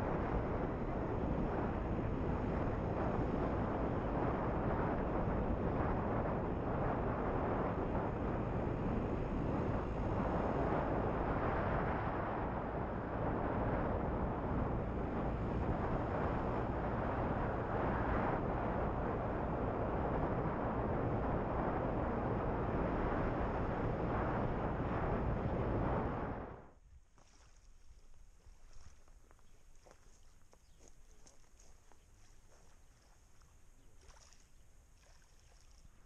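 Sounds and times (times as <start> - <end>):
wind rushing over microphone: 0.0 - 26.8.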